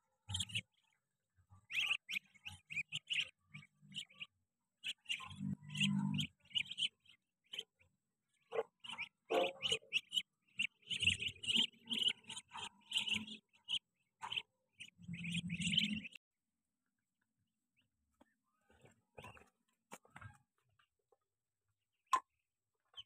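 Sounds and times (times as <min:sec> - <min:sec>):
ducklings peeping: 0:00.2 - 0:01.0, 0:01.6 - 0:16.2, 0:18.6 - 0:20.4.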